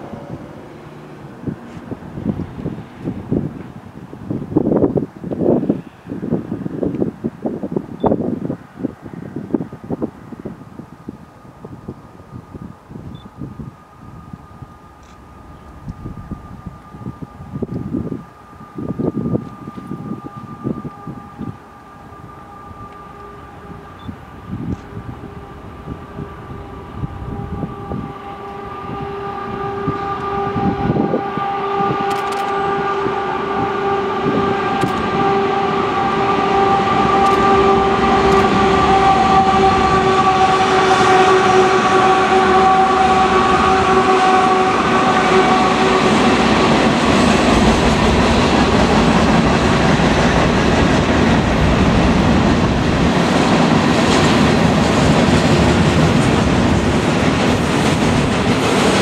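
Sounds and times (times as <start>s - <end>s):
freight cars rumbling: 0.0s - 59.0s
locomotive engine drone: 0.0s - 59.0s
train wheel clatter: 33.8s - 40.6s, 45.3s - 59.0s.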